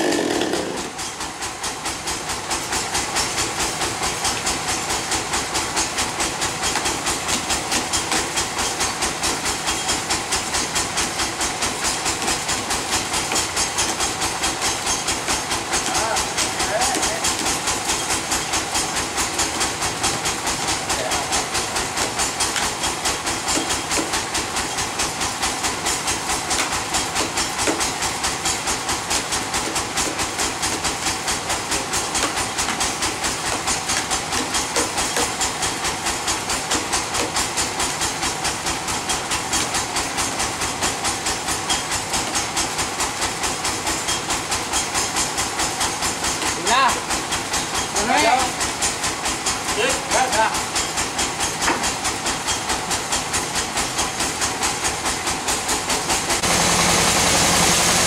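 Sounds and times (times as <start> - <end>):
band saw running: 0.0 - 58.0.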